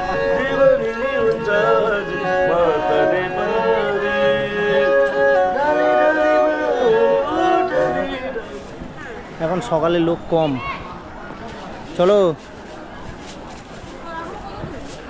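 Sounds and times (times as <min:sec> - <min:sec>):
bowed fiddle folk melody: 0:00.0 - 0:08.9.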